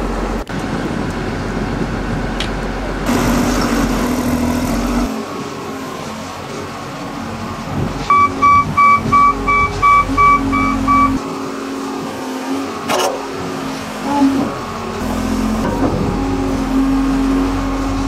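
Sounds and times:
diesel engine running: 0.0 - 18.0
electronic warning beeper: 8.1 - 11.2.

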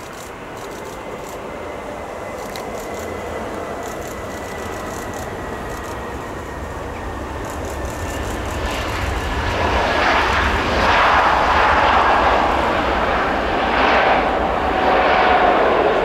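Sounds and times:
faint steady whine: 0.0 - 9.6
jet engine roar: 0.0 - 16.0.

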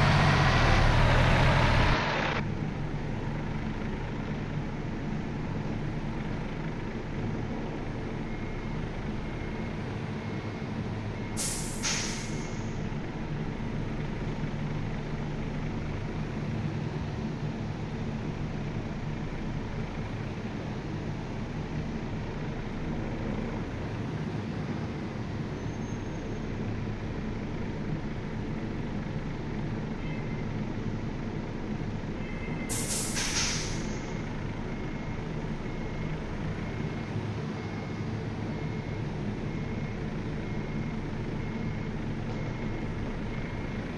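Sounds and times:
diesel truck engine running: 0.0 - 43.9
air brake hiss: 11.4 - 12.8, 32.7 - 34.2.

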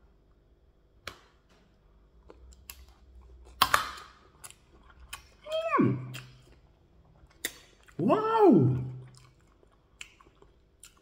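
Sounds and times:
close-up chewing: 2.2 - 11.0
wet mouth clicks: 6.0 - 6.5.

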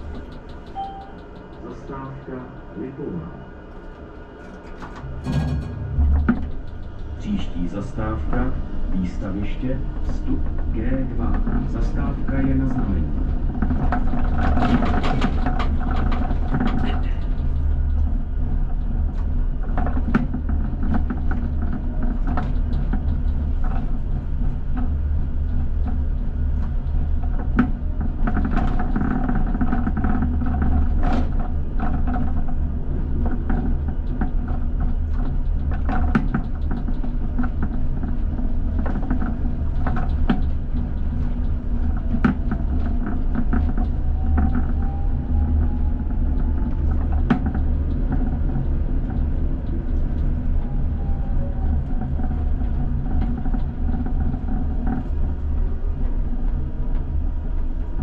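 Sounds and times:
tram motor whine rising: 0.0 - 9.8
tram rumbling: 0.0 - 58.0
wheels clicking on rails: 0.0 - 58.0.

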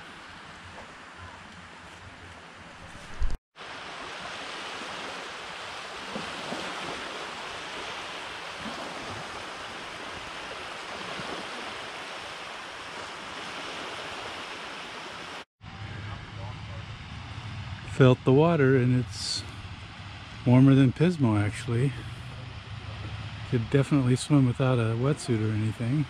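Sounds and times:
small waves lapping on sand: 0.0 - 15.5.

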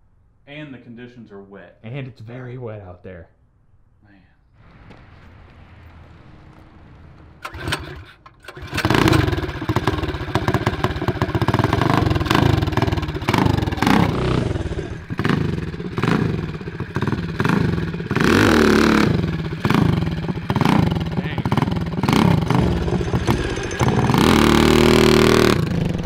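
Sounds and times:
small engine revving: 7.4 - 26.0.

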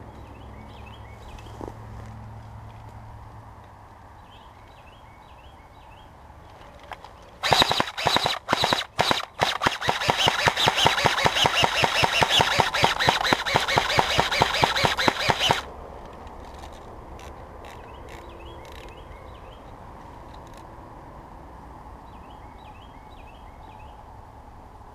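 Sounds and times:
airsoft rifle firing bursts: 7.4 - 15.7.

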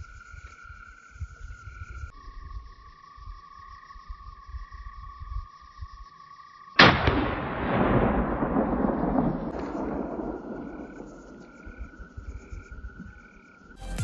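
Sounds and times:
rifle shot with rolling echo: 6.8 - 12.0
high trill: 13.8 - 14.0.

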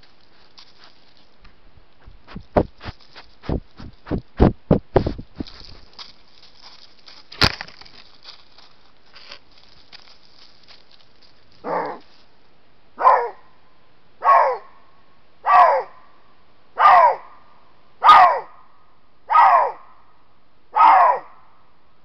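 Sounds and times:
fur rubbing against camera: 2.0 - 12.3.

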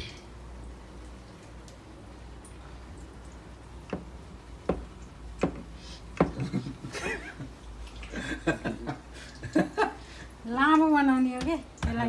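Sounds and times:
sharp knocks: 4.7 - 6.4.

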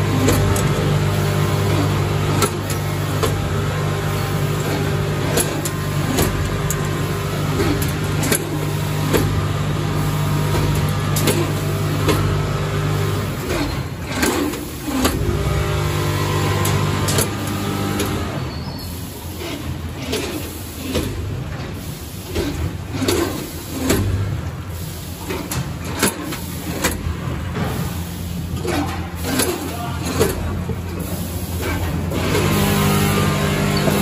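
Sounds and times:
machine clicks and knocks: 0.0 - 18.4, 20.0 - 24.6, 25.2 - 34.0
machine hum: 0.0 - 20.9, 25.5 - 34.0.

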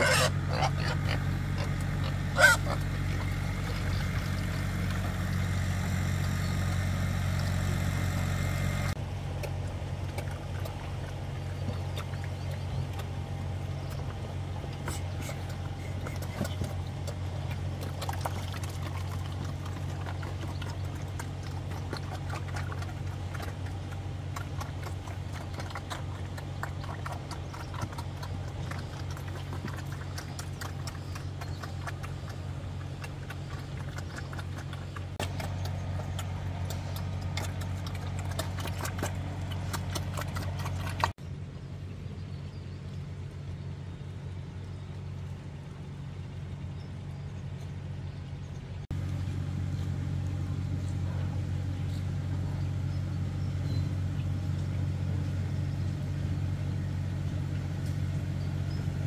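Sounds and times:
low motor hum: 0.0 - 59.0.

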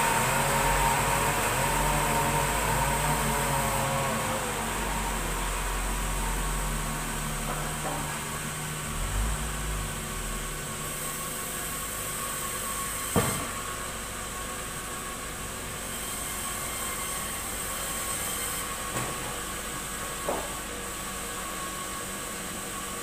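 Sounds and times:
low motor hum: 0.0 - 12.7
band saw whining: 0.0 - 23.0.

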